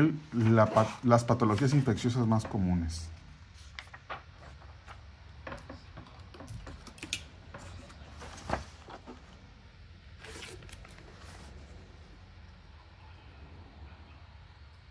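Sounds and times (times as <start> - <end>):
paper rustling: 0.3 - 2.6, 3.5 - 9.5.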